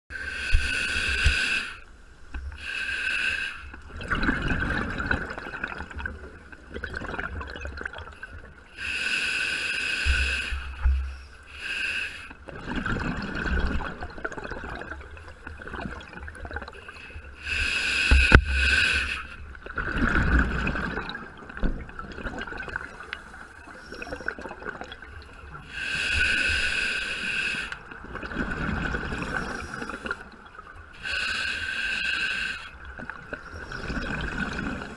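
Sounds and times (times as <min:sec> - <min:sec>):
scuba regulator inhalation hiss: 0:00.1 - 0:01.8, 0:02.6 - 0:03.7, 0:08.8 - 0:12.4, 0:16.8 - 0:19.4, 0:25.7 - 0:27.8, 0:31.0 - 0:32.8
exhaled bubbles gurgling underwater: 0:03.8 - 0:11.2, 0:11.9 - 0:34.9.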